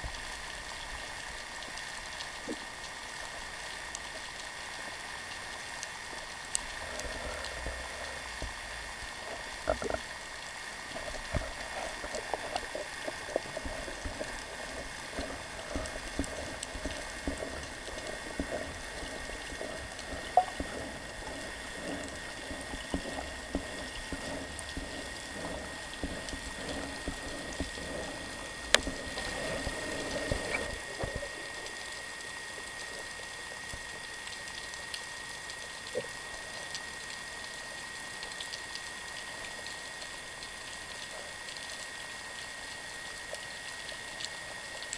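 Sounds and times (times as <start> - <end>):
underwater crackle of clicks: 0.0 - 44.9
thin steady high tone: 20.3 - 20.6.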